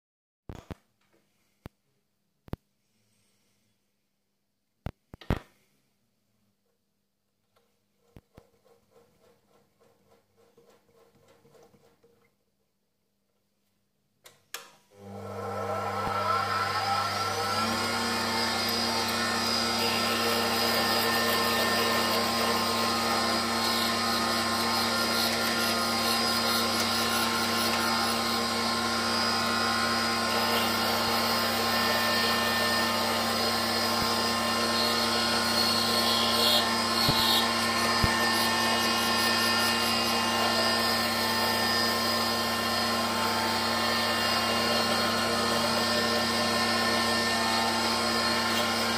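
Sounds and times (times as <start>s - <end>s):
lathe motor humming and whining: 15.0s - 48.9s.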